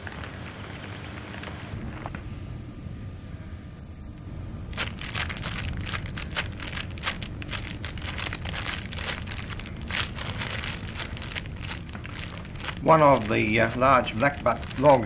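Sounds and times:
low steady hum: 0.0s - 15.0s
irregular crackling and crunching: 4.6s - 15.0s.

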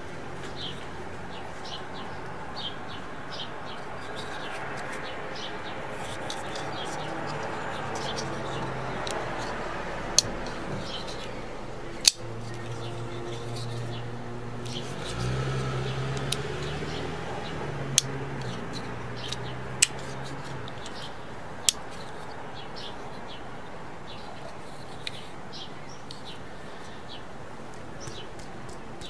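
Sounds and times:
knife handling ticks: 3.7s - 5.1s, 5.9s - 14.0s, 17.9s - 22.4s, 24.2s - 25.4s.

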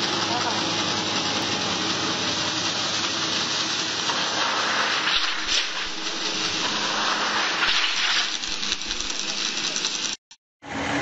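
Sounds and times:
slitting machine cutting steel: 0.0s - 11.0s.

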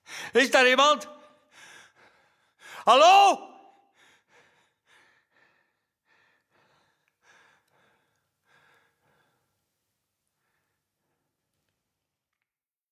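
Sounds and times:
faint breaths: 3.9s - 11.8s.

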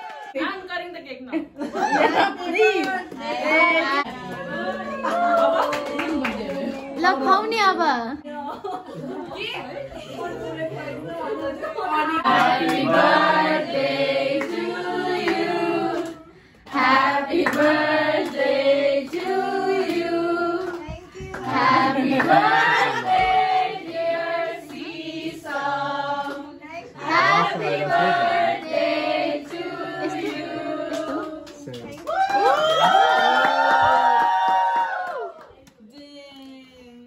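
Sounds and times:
hands clapping: 4.2s - 7.2s, 15.3s - 18.5s, 20.6s - 24.0s, 30.2s - 36.5s
group singing: 10.1s - 31.6s.

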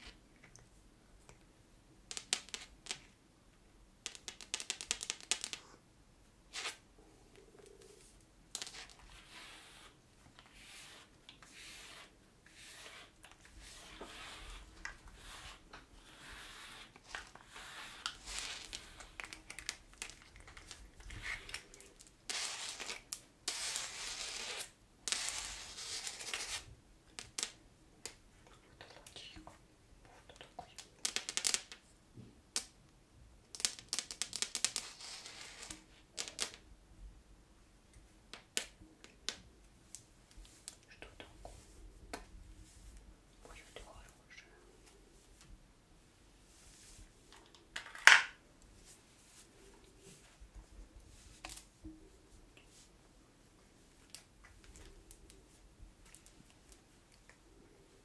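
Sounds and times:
brush scratching through fur: 9.1s - 18.9s.

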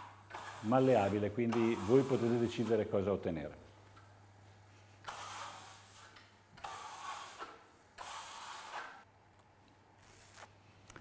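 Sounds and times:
trowel scraping plaster: 0.0s - 2.9s, 5.0s - 9.0s.

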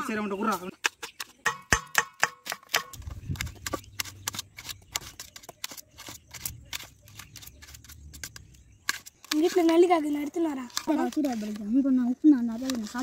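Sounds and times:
knife tapping a steel bowl: 1.4s - 3.0s.

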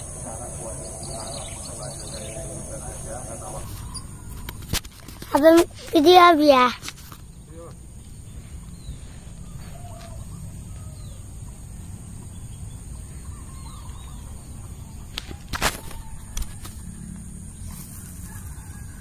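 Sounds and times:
steady low rumble: 0.0s - 4.6s, 7.2s - 15.1s
small birds calling: 0.0s - 19.0s
chickens clucking: 9.0s - 16.8s.

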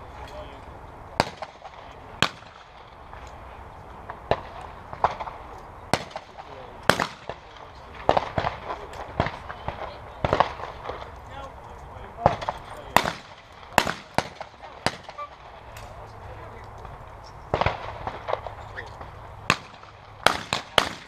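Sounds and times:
shotgun shots: 1.2s - 2.9s, 4.2s - 11.1s, 12.2s - 15.6s, 17.5s - 18.6s, 19.4s - 21.0s.

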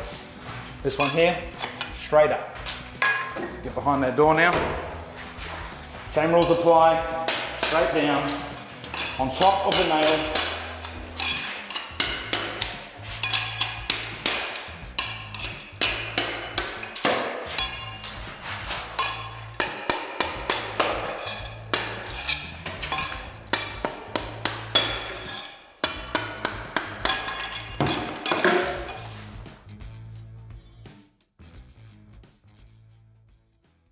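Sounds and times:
background music: 0.0s - 33.9s
rubber mallet striking steel pry bar: 6.5s - 18.2s, 18.9s - 28.8s.

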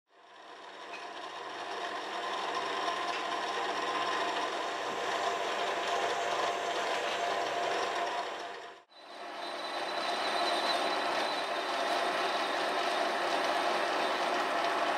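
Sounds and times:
metal lathe humming: 1.1s - 14.9s
drill boring into brass: 9.0s - 14.9s.

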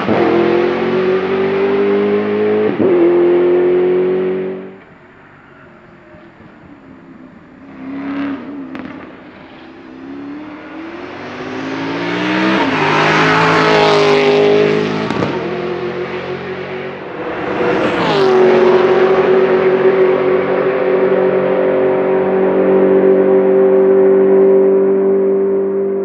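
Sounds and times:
race car engine passing by: 7.7s - 26.0s.

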